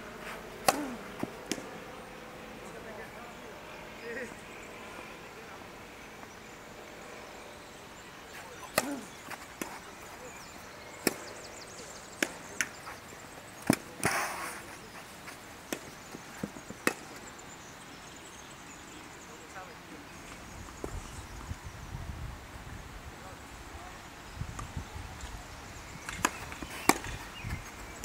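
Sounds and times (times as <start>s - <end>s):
tennis ball bounces: 0.6s - 1.7s, 8.6s - 10.0s, 11.0s - 11.4s, 12.1s - 12.8s, 13.6s - 14.2s, 15.7s - 17.2s, 26.0s - 28.0s
tennis ball racket hits: 0.6s - 1.7s, 8.6s - 9.9s, 13.6s - 14.7s, 26.1s - 27.2s.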